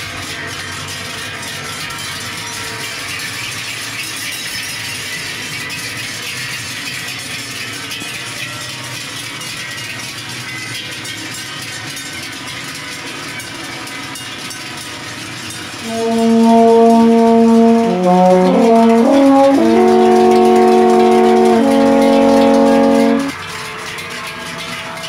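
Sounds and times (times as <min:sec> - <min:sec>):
cowbells clanging: 0:00.5 - 0:24.8
brass instrument held note: 0:15.8 - 0:23.3.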